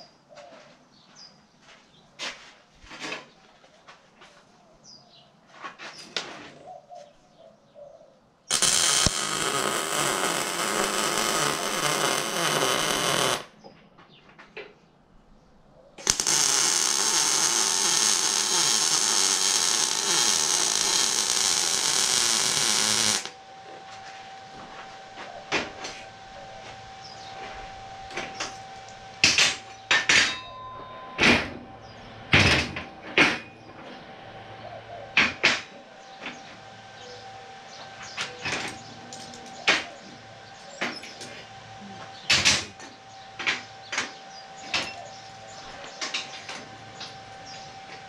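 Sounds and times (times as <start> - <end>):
arc welding crackle: 8.5 - 13.6, 16.0 - 30.3, 35.2 - 48.0.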